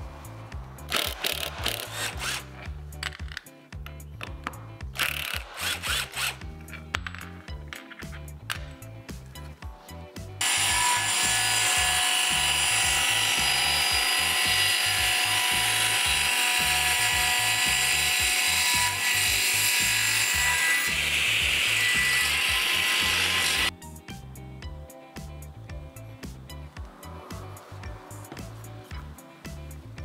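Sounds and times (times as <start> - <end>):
background music with steady beat: 0.0 - 30.0
table saw cutting wood: 1.0 - 2.6, 5.3 - 6.4, 10.4 - 23.7.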